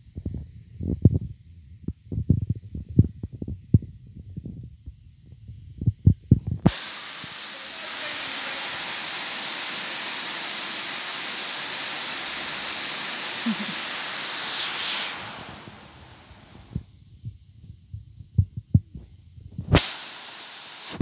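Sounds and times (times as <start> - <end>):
dull low thumps: 0.1 - 6.6, 16.7 - 19.7
waterfall pouring into pool: 6.7 - 16.3, 19.8 - 21.0.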